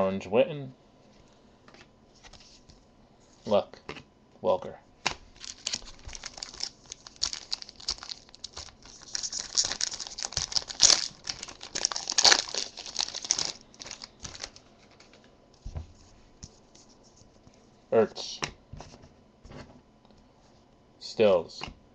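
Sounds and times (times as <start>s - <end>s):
foil wrapper crinkling and tearing: 5.4s - 15.2s.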